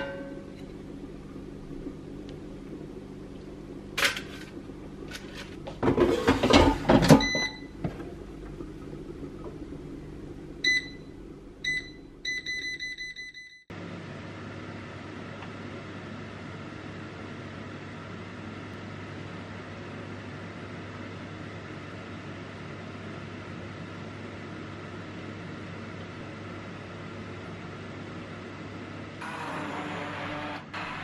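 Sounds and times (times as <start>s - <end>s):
air fryer basket clattering: 4.0s - 8.2s.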